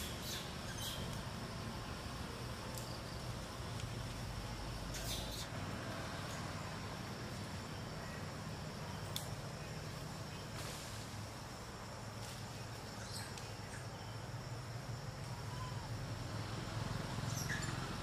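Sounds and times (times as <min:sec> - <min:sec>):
faint clicks: 0:09.0 - 0:09.4.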